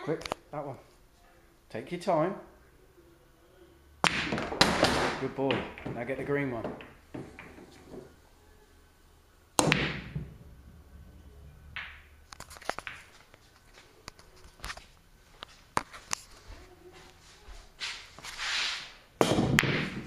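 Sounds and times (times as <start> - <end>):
balls rolling on cloth: 4.1 - 8.3
cue striking ball: 6.6 - 8.1, 9.6 - 10.4, 11.7 - 12.1.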